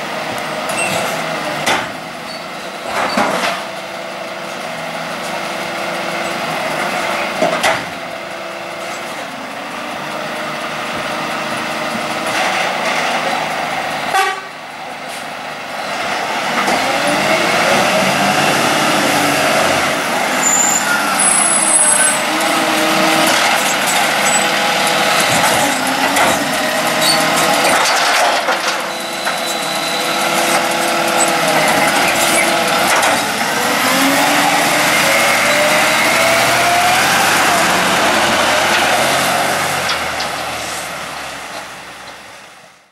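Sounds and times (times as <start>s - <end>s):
garbage truck diesel engine: 0.0s - 42.9s.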